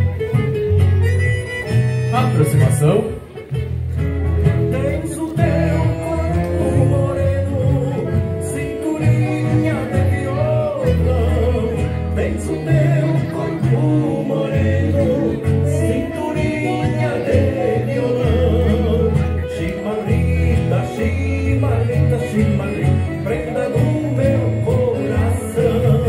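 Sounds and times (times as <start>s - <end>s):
bass line: 0.0s - 26.0s
held chords: 0.0s - 26.0s
person singing: 4.5s - 26.0s.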